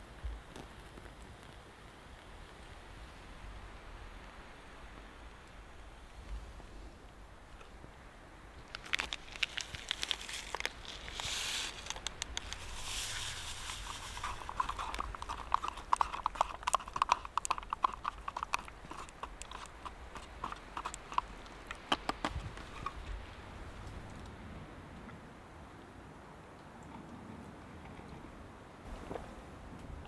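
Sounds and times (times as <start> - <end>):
rustling: 8.6 - 24.2.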